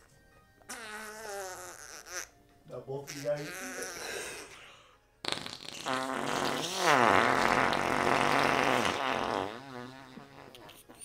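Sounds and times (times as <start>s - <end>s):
fake fart blown with mouth: 0.6s - 2.4s, 3.1s - 4.1s, 5.2s - 11.0s.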